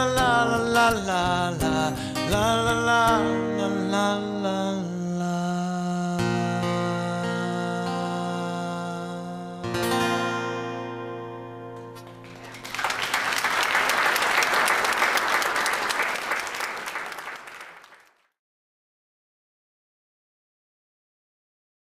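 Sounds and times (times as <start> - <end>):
acoustic guitar chord ringing: 0.0 - 12.4
audience applause: 12.2 - 18.3.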